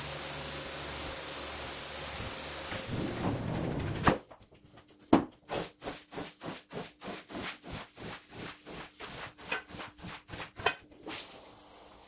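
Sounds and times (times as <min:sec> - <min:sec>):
scrub brush scrubbing wet rug: 0:05.5 - 0:11.3.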